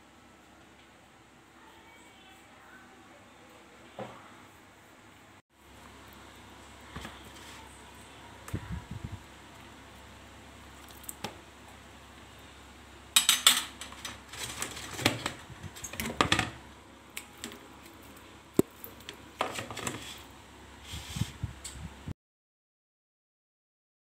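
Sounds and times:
desk fan humming: 3.7 - 22.1
metal spoon scraping plastic colander: 13.9 - 16.2, 19.4 - 20.3.

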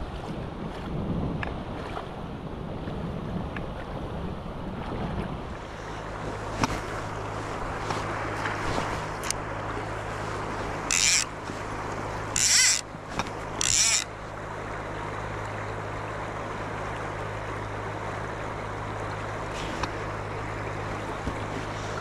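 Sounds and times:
river rushing: 5.4 - 22.0
short high rasps: 10.8 - 11.7, 12.3 - 14.1.

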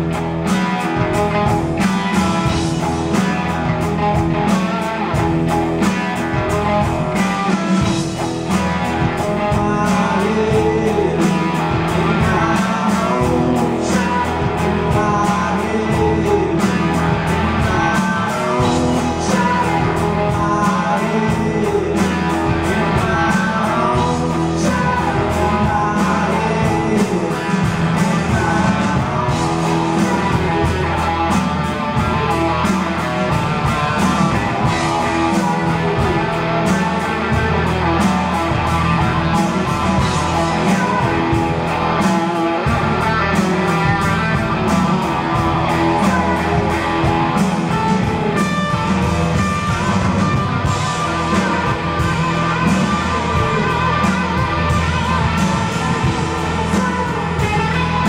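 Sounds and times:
drums: 0.0 - 58.0
electric guitar: 0.0 - 58.0
live rock band playing: 0.0 - 58.0.

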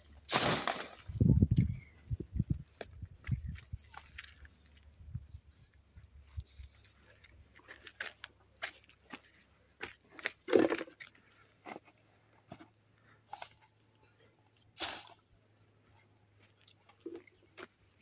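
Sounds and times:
dry brushwood crackling and crunching: 0.4 - 12.6
footsteps on dry ground: 0.9 - 12.7.

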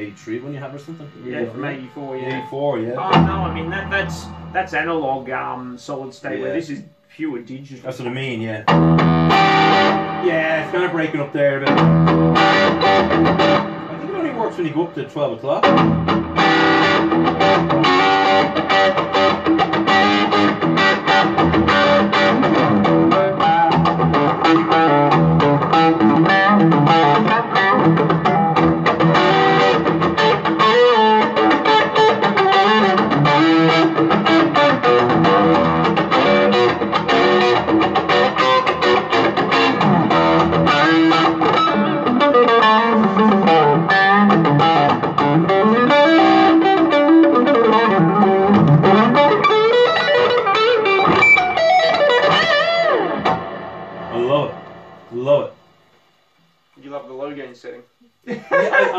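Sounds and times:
electric guitar playing: 0.0 - 5.4, 8.6 - 55.3.

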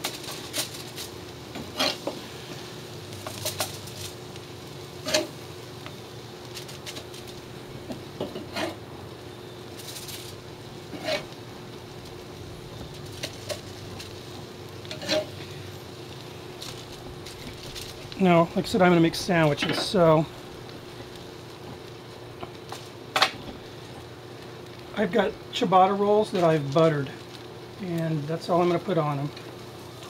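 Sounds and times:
charcoal grill hiss: 0.0 - 30.0
metal tongs clicking on grill grate: 13.2 - 14.2.

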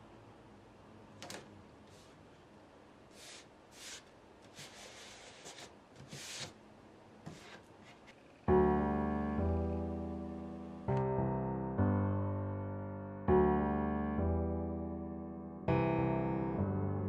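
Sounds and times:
hands rubbing tape on paper: 3.1 - 6.6
piano music: 8.5 - 17.0.

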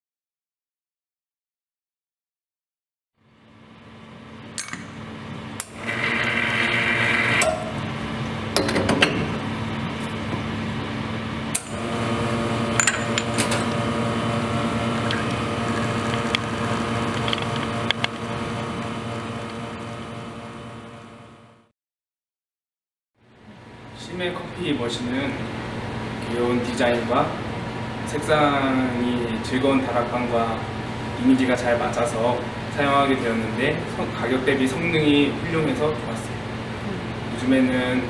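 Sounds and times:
espresso machine pump humming: 5.6 - 7.9, 11.6 - 21.6
portafilter and glass clinks: 12.8 - 13.6.

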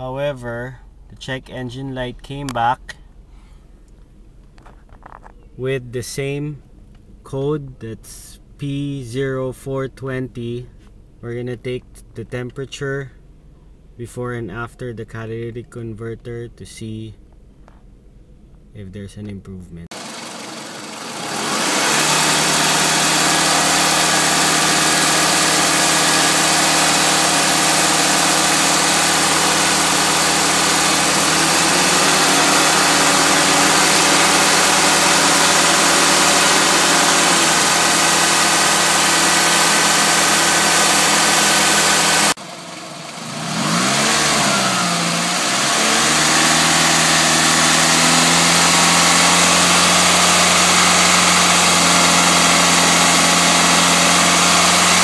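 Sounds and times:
car engine idling: 19.9 - 55.0.

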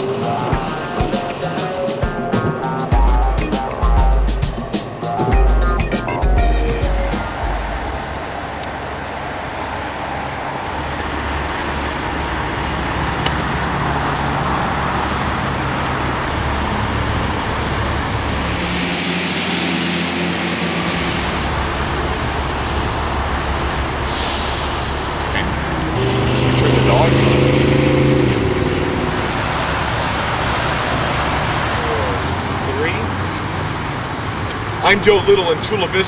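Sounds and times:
passing cars rushing: 18.0 - 22.1
bright traffic hiss: 18.1 - 21.7.

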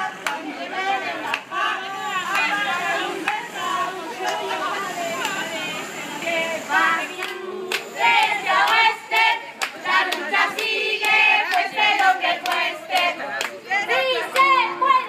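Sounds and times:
crowd chanting in unison: 0.0 - 15.0
crowd clapping in time: 0.2 - 0.5, 1.2 - 1.5, 2.3 - 3.6, 4.2 - 5.4, 6.7 - 14.6.

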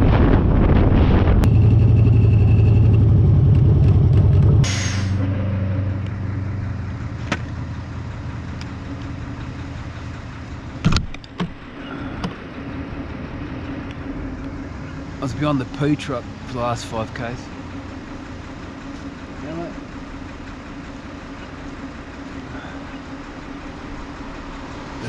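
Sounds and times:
wind on microphone: 0.0 - 1.7
motorcycle engine at speed: 0.0 - 25.0
motorcycle engine idling: 1.5 - 25.0.

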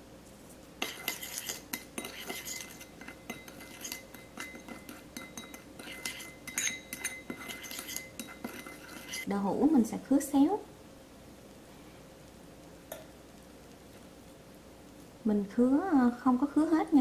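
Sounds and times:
spoon clinking and scraping bowl: 0.8 - 9.3.

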